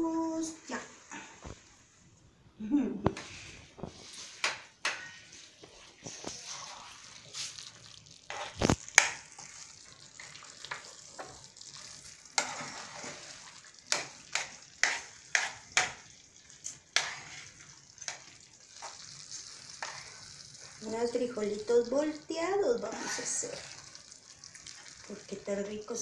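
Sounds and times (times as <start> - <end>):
faint sizzle: 2.6 - 26.0
utensil clacking and scraping pan: 4.3 - 5.4, 12.4 - 16.1, 17.0 - 19.0.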